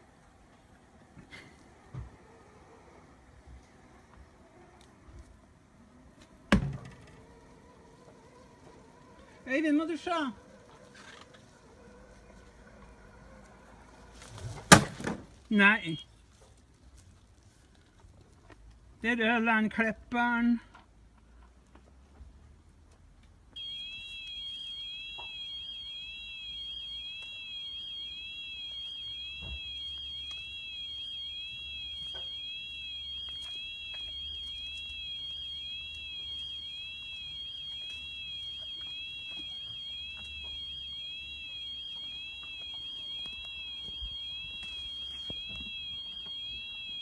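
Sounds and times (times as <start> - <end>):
high-pitched electronic alarm tone: 23.6 - 47.0.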